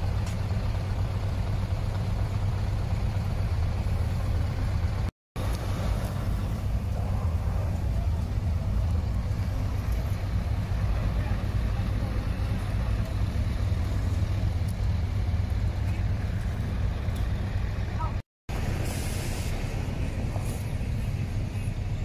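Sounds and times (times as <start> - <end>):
diesel truck engine rumbling: 0.0 - 22.0
short hiss: 18.8 - 19.8.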